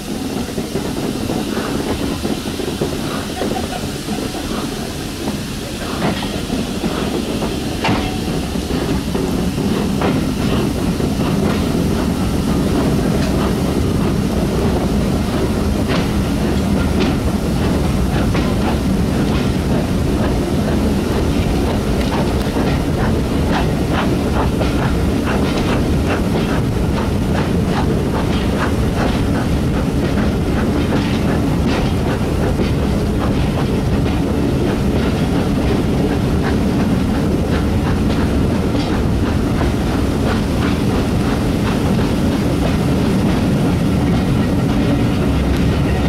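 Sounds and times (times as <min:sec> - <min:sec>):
train rumbling: 0:00.0 - 0:46.0.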